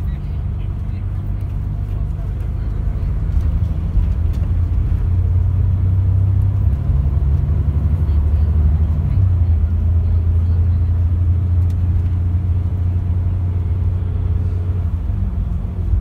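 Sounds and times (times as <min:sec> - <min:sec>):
diesel engine drone: 0:00.0 - 0:16.0
road rumble: 0:00.0 - 0:16.0.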